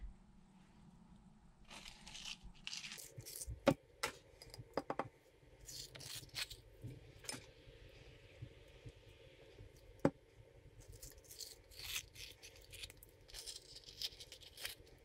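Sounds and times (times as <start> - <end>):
spoon scraping avocado: 5.6 - 6.6, 10.8 - 15.0.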